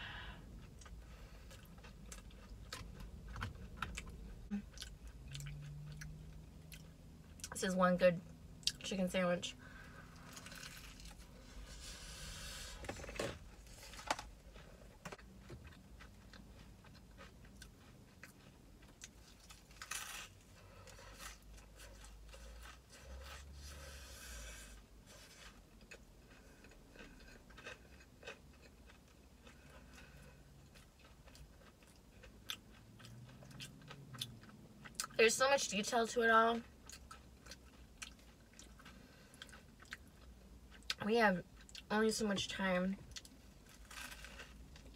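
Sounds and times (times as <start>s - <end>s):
breading crunching: 13.7s - 23.5s, 43.1s - 44.9s
wet chewing: 36.6s - 41.0s.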